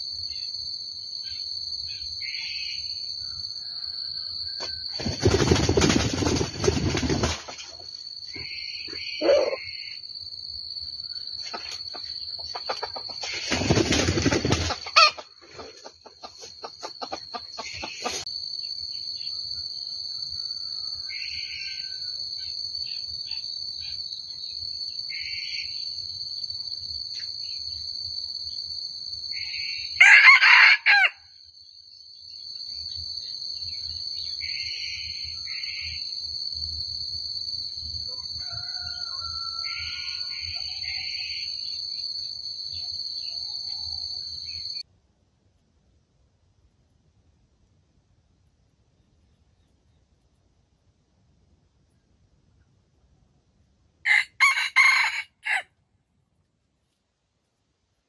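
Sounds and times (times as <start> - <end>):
rooster crowing: 3.2 - 4.9, 9.0 - 9.9, 14.8 - 15.2, 29.4 - 31.3, 38.1 - 41.5, 54.0 - 55.7
faint bird calls: 8.3 - 10.0.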